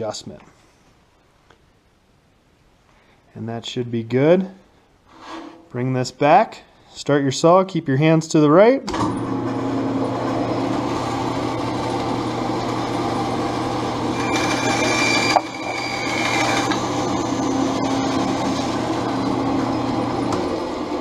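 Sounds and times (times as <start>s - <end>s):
bandsaw motor hum: 9.3s - 21.0s
saw blade cutting wood: 14.2s - 18.8s.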